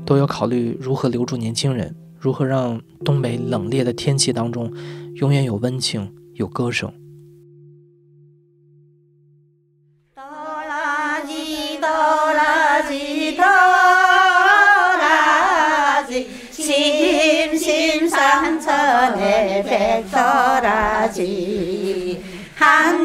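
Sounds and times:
woman singing unaccompanied: 10.2 - 23.0.

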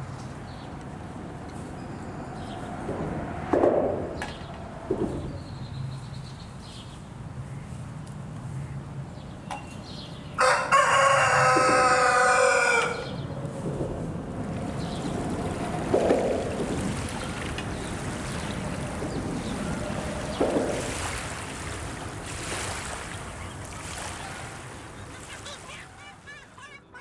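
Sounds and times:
outdoor background: 0.0 - 27.0
rooster crowing: 10.4 - 13.2.

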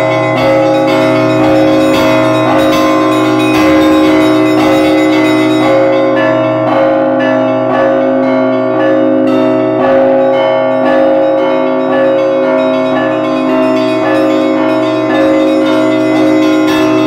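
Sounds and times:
small bells struck quickly: 0.0 - 7.4
large bells ringing: 0.0 - 17.0.

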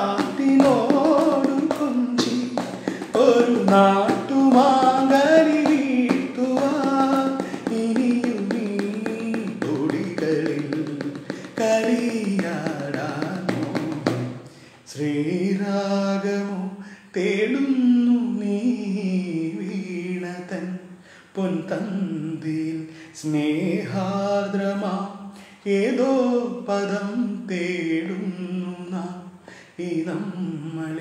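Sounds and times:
fingers tapping plastic box: 0.0 - 14.3
man singing: 0.0 - 31.0.

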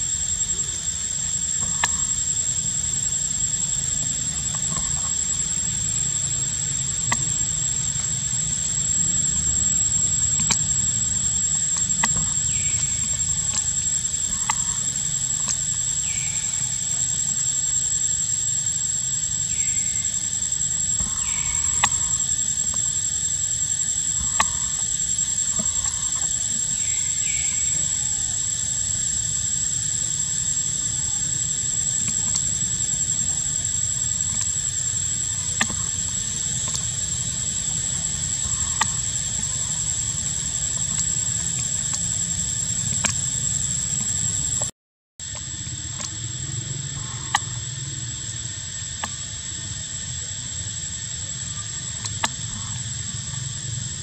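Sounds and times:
high-pitched insect whine: 0.0 - 54.0
sharp clicks: 7.0 - 17.2, 21.0 - 23.0, 23.8 - 28.1, 29.2 - 44.7.

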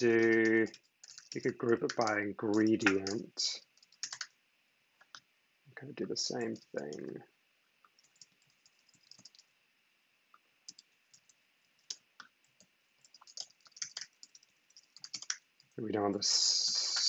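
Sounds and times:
typing on computer keyboard: 0.0 - 4.3, 7.8 - 9.5, 10.7 - 15.8.

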